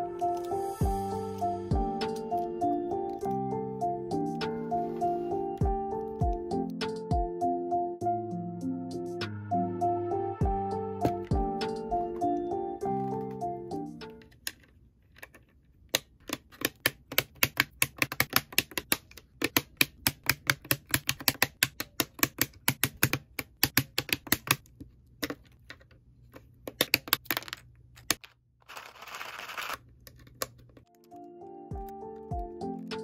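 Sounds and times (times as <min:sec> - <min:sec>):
keyboard switches clacking: 0:15.2 - 0:25.8, 0:26.6 - 0:27.4.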